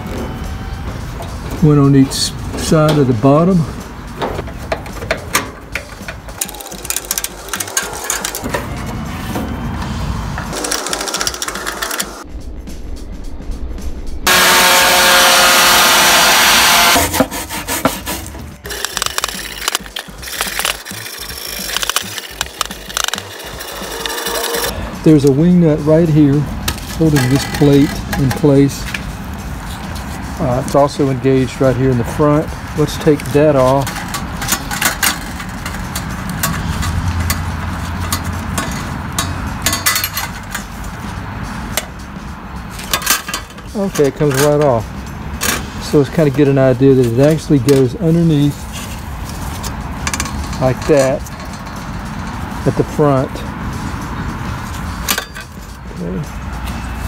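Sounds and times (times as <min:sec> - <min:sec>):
steady low hum: 0:07.3 - 0:17.0
cordless blower whining: 0:14.3 - 0:17.2
stiff brush scrubbing metal: 0:14.3 - 0:39.8.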